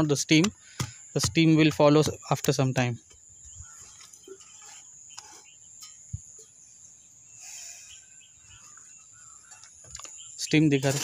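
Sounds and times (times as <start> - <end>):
light taps and scrapes: 3.8 - 6.6.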